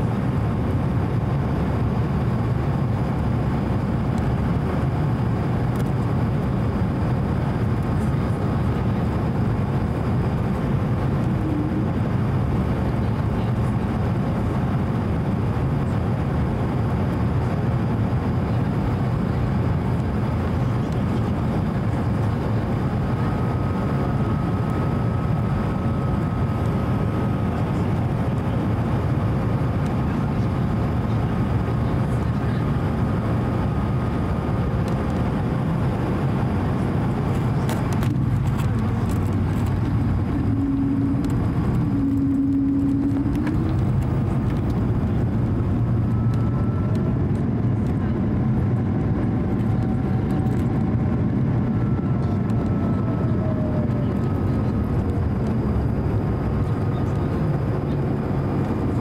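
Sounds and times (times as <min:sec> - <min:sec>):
airplane cabin engine roar: 0:00.0 - 0:59.0.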